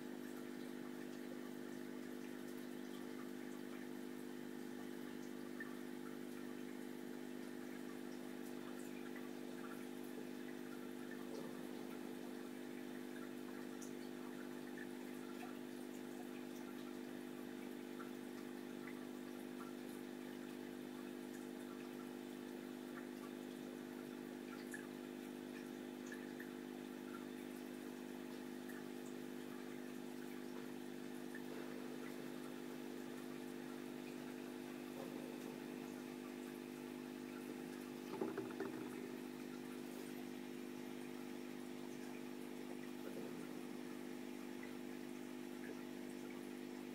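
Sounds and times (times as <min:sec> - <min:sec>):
aquarium pump humming: 0:00.0 - 0:46.9
water trickling and dripping: 0:00.0 - 0:46.9.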